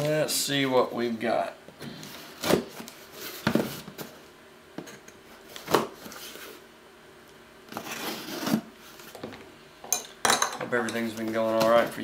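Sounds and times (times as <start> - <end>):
cardboard box scraping and rustling: 7.7 - 8.7.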